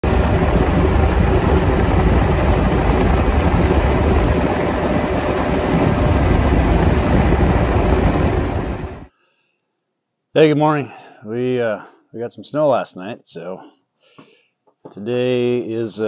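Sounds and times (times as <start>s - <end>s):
diesel tractor engine running: 0.0s - 9.1s.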